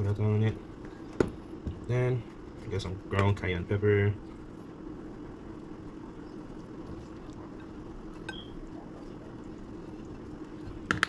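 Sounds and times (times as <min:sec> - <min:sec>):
low kitchen hum: 0:00.0 - 0:11.0.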